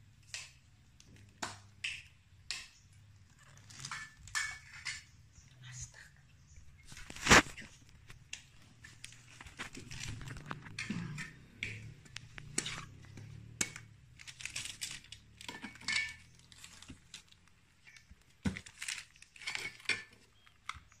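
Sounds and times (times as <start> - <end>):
rind crackling and tearing: 3.3 - 4.4, 6.9 - 20.9.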